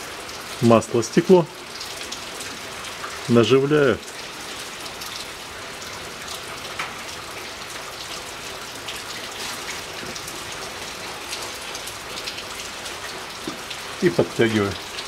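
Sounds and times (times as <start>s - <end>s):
raindrops ticking: 0.0s - 15.0s
steady rain: 0.0s - 15.0s.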